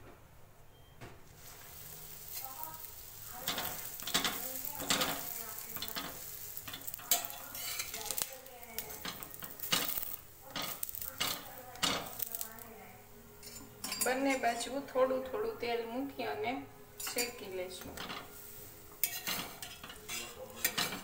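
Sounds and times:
bun sizzling on griddle: 1.3 - 14.9, 16.0 - 21.0
spatula scraping griddle: 1.4 - 12.6, 17.0 - 21.0.

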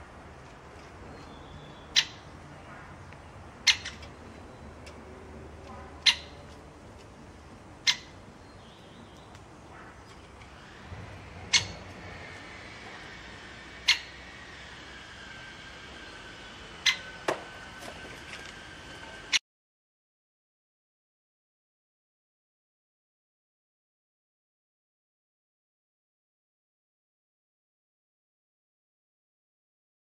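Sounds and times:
faint birdsong: 0.0 - 19.4
woodpecker ticks: 3.1 - 7.2.

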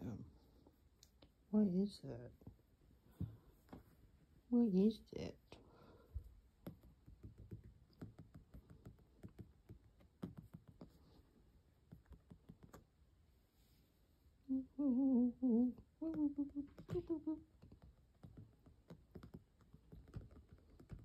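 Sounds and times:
person humming: 14.4 - 17.6.

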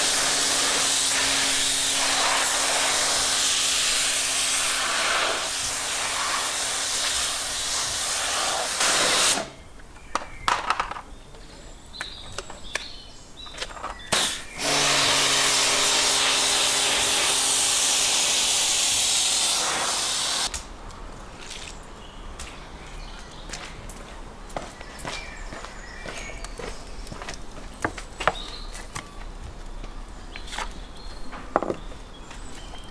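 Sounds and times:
pump motor hum: 0.0 - 6.8, 14.6 - 20.5
pressure washer spraying water: 0.0 - 9.5, 14.1 - 20.5.

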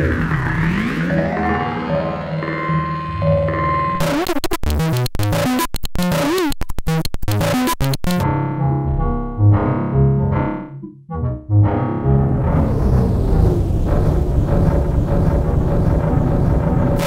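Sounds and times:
glitchy drum machine pattern: 0.1 - 8.2, 13.7 - 17.0
low thumps: 12.2 - 17.0.

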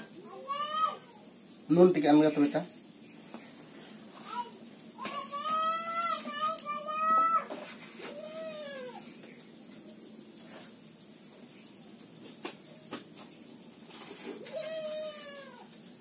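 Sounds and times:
cat meowing: 14.4 - 15.7.

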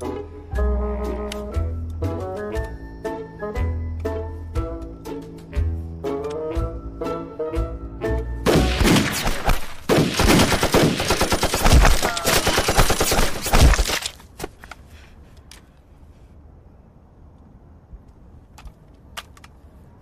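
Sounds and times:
machine gun firing bursts: 8.5 - 14.0.

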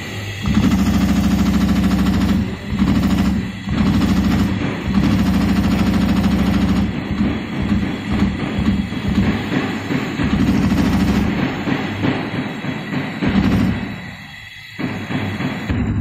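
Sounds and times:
machine punching holes in leather: 0.4 - 11.9.

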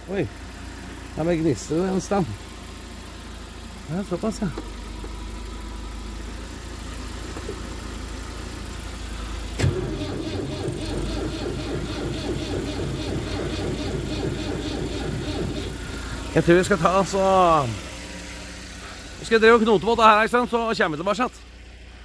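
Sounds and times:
engine hum: 0.0 - 22.0
tractor engine turning over: 9.5 - 17.7.

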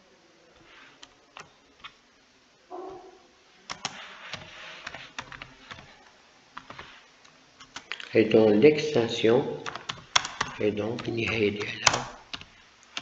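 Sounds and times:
keyboard key clicks: 9.7 - 12.5.

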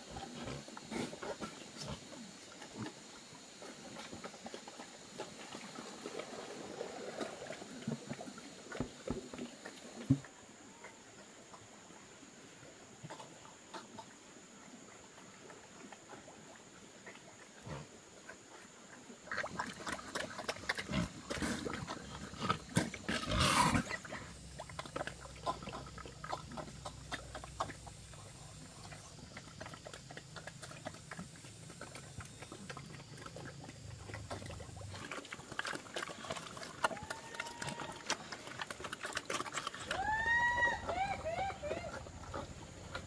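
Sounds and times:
loud animal call: 39.8 - 42.4.

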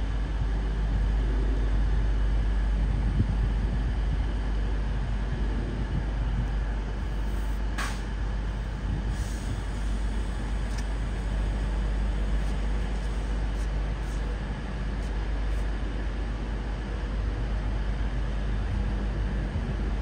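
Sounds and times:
train rumbling: 0.0 - 20.0
short sharp hiss: 7.3 - 8.1.

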